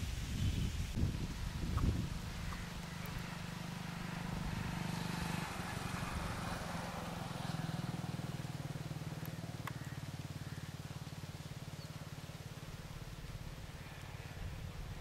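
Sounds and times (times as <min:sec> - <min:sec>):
engine humming: 0:00.9 - 0:15.0.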